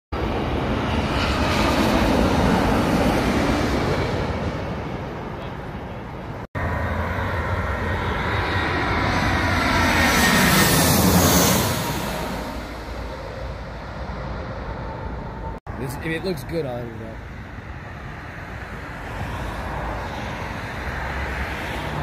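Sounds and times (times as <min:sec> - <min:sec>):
airliner engine with faint whine: 0:00.2 - 0:22.0
jet airliner passing overhead: 0:00.2 - 0:22.0.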